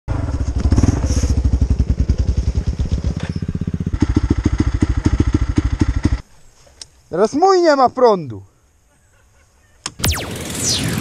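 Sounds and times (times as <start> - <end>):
atv engine idling: 0.1 - 6.2.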